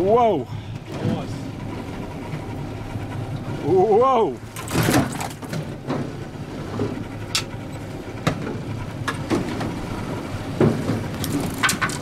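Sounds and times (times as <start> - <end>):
boat engine idling: 0.0 - 12.0
fish flapping against deck grating: 4.5 - 7.6, 8.2 - 12.0.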